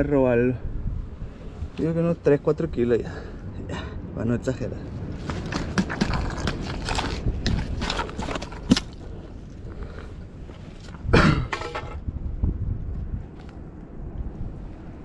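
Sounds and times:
wind rumble on microphone: 0.0s - 15.0s
clicks and knocks on rocks: 5.1s - 10.2s
footsteps over stone: 5.1s - 12.0s.

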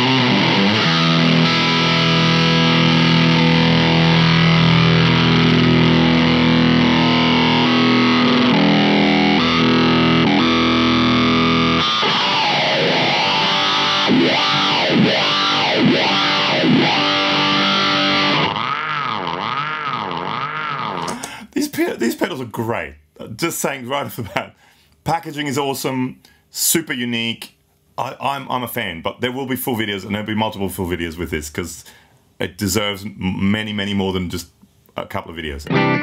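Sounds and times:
distorted electric guitar chords: 0.0s - 21.4s, 35.6s - 36.0s.

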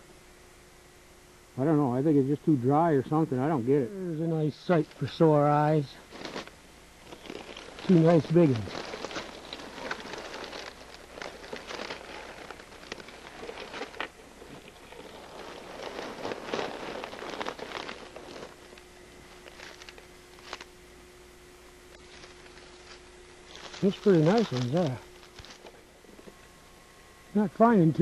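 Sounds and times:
faint hum: 0.0s - 28.0s
dry leaves rustling and crunching: 4.2s - 20.8s, 21.9s - 26.5s.

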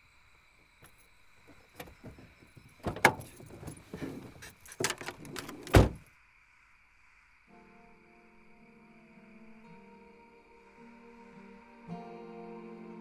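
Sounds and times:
car door slam: 1.8s - 6.0s.

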